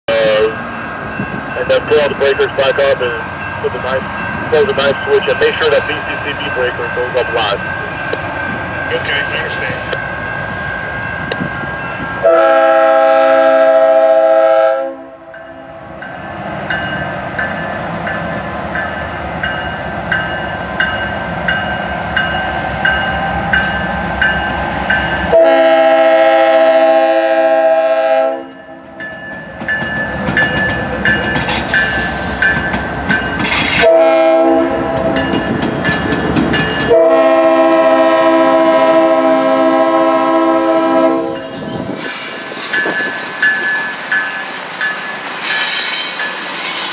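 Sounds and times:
locomotive air horn: 0:12.2 - 0:15.4, 0:25.3 - 0:28.8, 0:33.8 - 0:35.1, 0:36.9 - 0:41.5
wheels clacking over rails: 0:28.9 - 0:33.8, 0:35.0 - 0:36.9.

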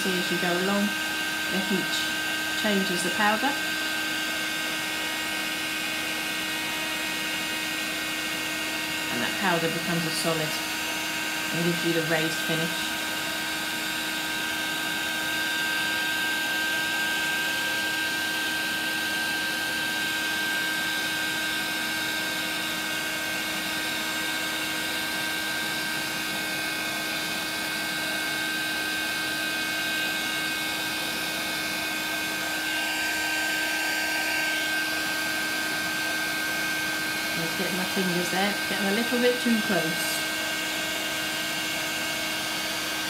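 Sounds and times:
heat tool fan whirring: 0:00.0 - 0:43.0.

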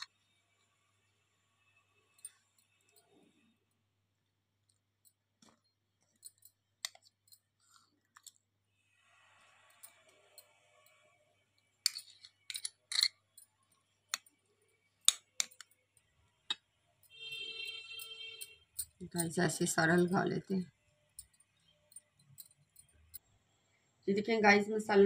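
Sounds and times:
metal spoon stirring paste: 0:04.6 - 0:20.5.

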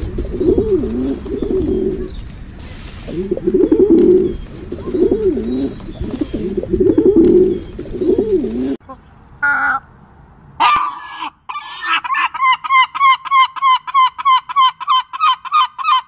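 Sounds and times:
kookaburra calling and cackling: 0:00.0 - 0:02.2, 0:03.1 - 0:09.9, 0:10.6 - 0:16.0
pigeons cooing: 0:00.0 - 0:08.8.

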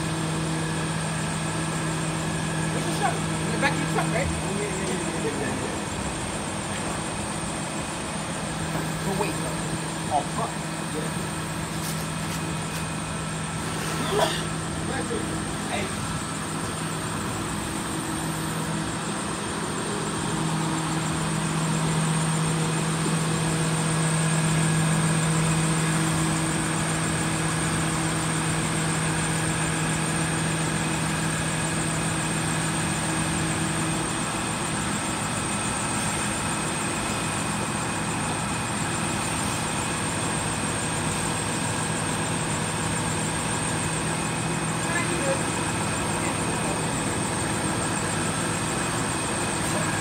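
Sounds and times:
crane engine running: 0:00.0 - 0:50.0.

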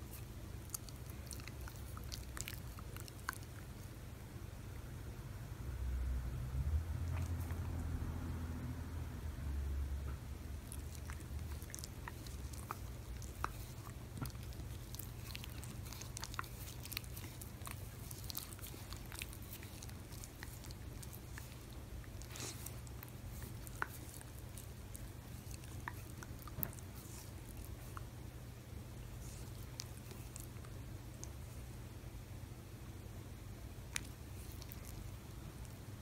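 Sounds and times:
dog licking fingers wet smacks: 0:10.6 - 0:28.1.

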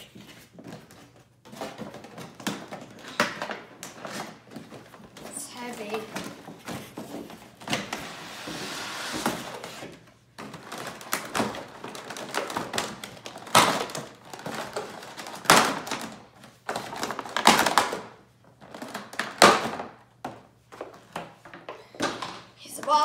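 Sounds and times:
packaging rustling and scraping: 0:00.0 - 0:19.9
plastic packaging crinkling: 0:10.4 - 0:19.6.

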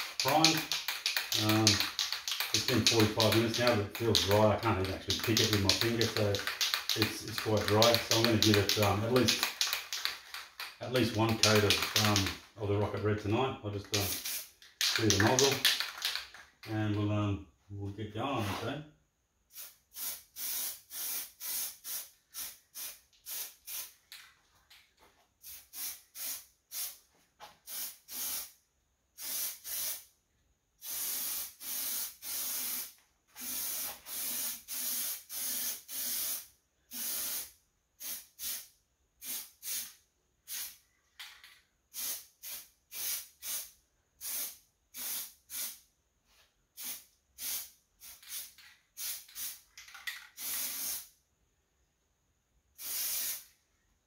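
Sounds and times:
aerosol spray can hissing: 0:00.0 - 0:12.3, 0:13.9 - 0:16.4, 0:19.5 - 0:24.0, 0:25.4 - 0:27.0, 0:27.7 - 0:28.6, 0:29.2 - 0:30.1, 0:30.8 - 0:40.8, 0:41.9 - 0:45.8, 0:46.8 - 0:49.6, 0:50.4 - 0:51.1, 0:52.8 - 0:53.5.

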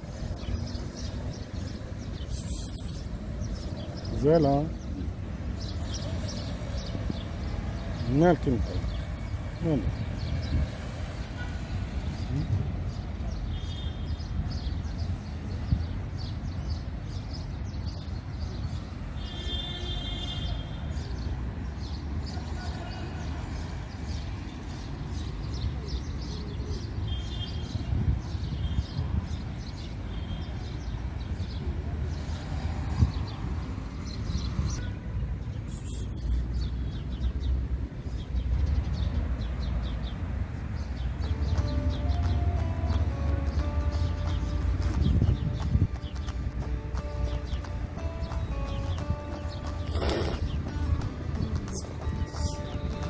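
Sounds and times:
small birds chirping: 0:00.0 - 0:22.4, 0:23.6 - 0:53.0
high bird calls: 0:41.1 - 0:53.0.

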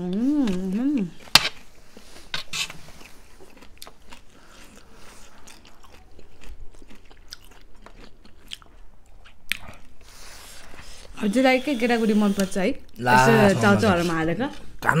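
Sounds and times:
chewing noodles: 0:00.1 - 0:11.2.

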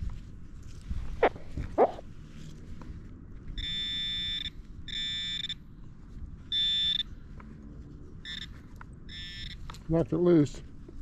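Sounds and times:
metal detector electronic tones: 0:03.6 - 0:05.6, 0:06.5 - 0:07.1, 0:08.2 - 0:09.6.

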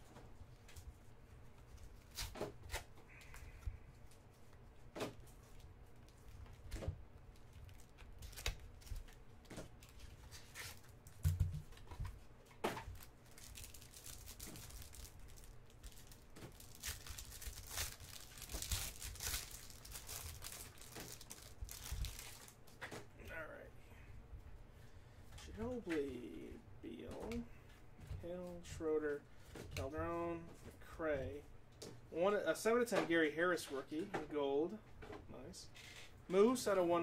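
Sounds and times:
wrapper crinkling: 0:12.8 - 0:22.6
foil pack tearing open: 0:12.9 - 0:22.6.

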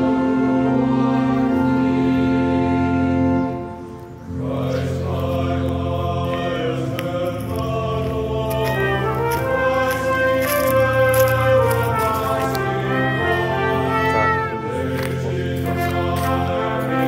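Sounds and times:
slow choral-style chords: 0:00.0 - 0:17.0.

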